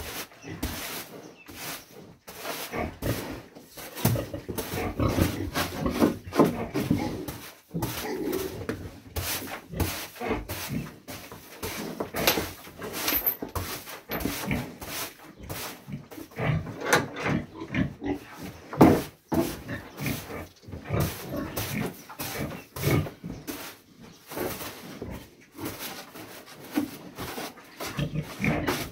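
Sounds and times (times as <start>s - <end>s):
broom scraping a floor: 0.0s - 16.6s, 18.4s - 28.9s
pig grunting: 2.6s - 8.7s, 9.7s - 11.0s, 15.8s - 18.6s, 19.5s - 23.3s, 27.8s - 28.9s.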